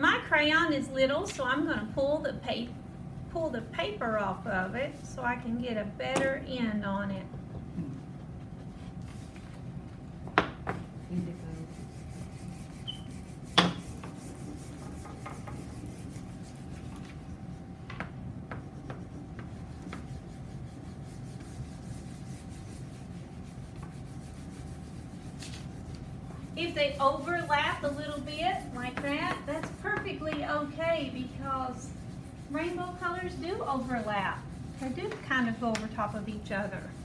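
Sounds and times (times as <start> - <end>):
crayon rubbing on paper: 11.1 - 17.2, 18.6 - 37.0.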